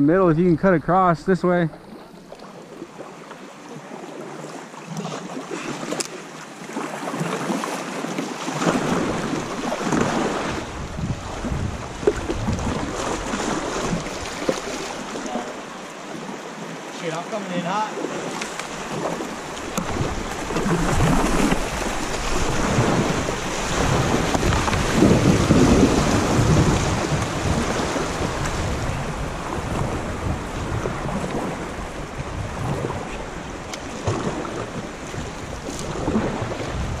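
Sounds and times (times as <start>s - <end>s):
river water rushing and splashing: 0.0s - 37.0s
wind buffeting microphone: 8.6s - 15.2s, 18.4s - 37.0s.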